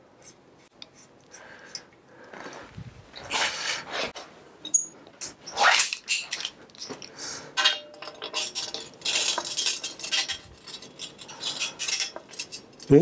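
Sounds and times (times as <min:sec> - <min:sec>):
bike parts clinking and rattling: 0:04.6 - 0:13.0.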